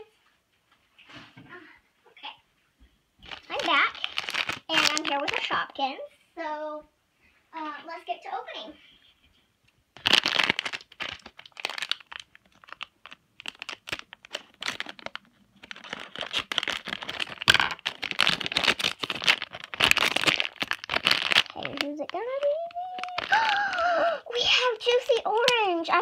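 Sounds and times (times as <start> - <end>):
foil packet crinkling and tearing: 3.2 - 5.7, 10.0 - 26.0.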